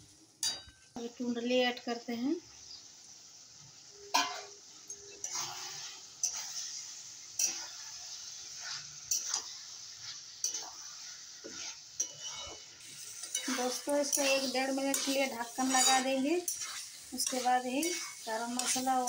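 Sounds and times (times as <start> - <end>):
light sizzle: 0.0 - 19.0
spatula clanking against pan: 4.1 - 5.4, 10.4 - 10.8, 11.4 - 12.6, 13.2 - 19.0
metal spatula scraping pan: 4.1 - 19.0.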